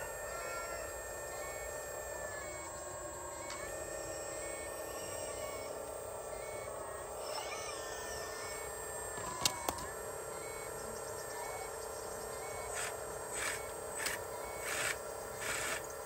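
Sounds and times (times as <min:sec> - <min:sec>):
hydraulic pump whining: 0:00.0 - 0:16.0
sharp clicks: 0:09.2 - 0:09.9, 0:12.8 - 0:15.8
hydraulic hiss: 0:12.6 - 0:16.0.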